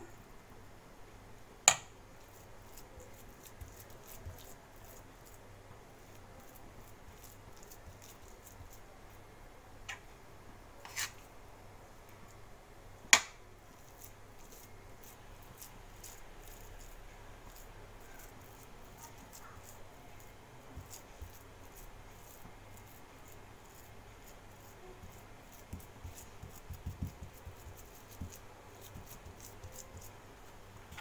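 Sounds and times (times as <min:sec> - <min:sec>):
spoon spreading filling: 0:02.2 - 0:05.4, 0:06.0 - 0:08.9, 0:10.8 - 0:11.3, 0:13.7 - 0:31.0.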